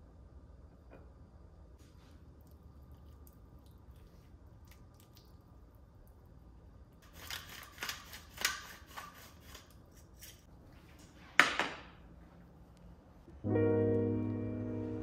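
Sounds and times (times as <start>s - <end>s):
piano music: 13.3s - 15.0s.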